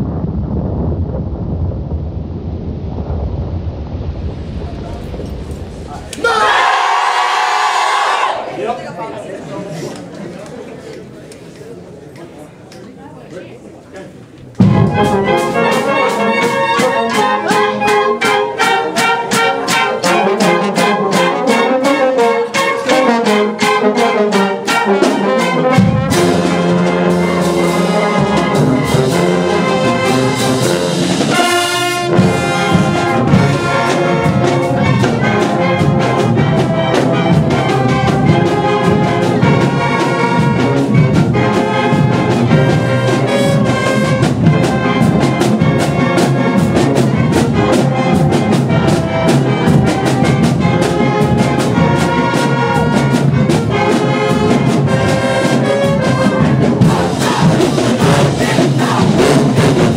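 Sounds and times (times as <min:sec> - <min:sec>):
brass section playing: 0:14.6 - 0:59.9
steady drum beat: 0:14.6 - 0:59.9.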